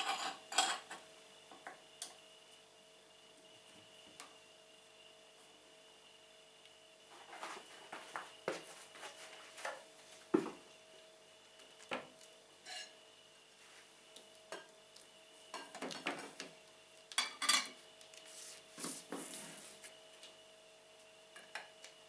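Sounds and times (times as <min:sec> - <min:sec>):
dishes clinking and knocking: 0:00.0 - 0:01.0, 0:17.2 - 0:17.8.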